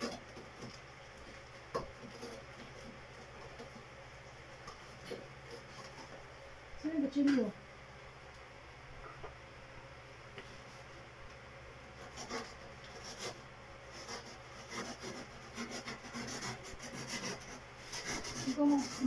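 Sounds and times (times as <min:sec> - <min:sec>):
cutter rasping through cardboard: 0:12.0 - 0:19.0.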